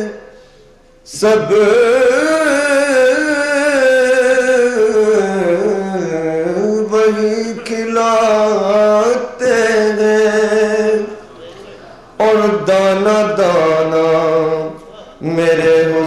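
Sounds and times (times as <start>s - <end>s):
man singing solo: 1.1s - 11.2s.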